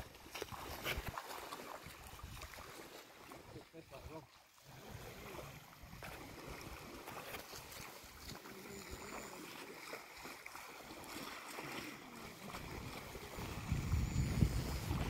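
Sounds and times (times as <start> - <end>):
small waves washing in: 0.0 - 15.0
wind buffeting microphone: 12.5 - 15.0.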